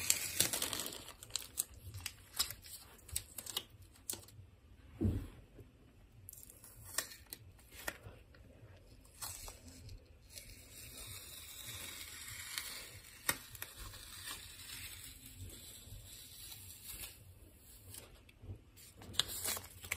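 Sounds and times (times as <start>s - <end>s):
tape peeling off paper: 0.0s - 4.4s, 9.1s - 18.2s, 18.8s - 19.9s
paper handling: 16.9s - 19.9s.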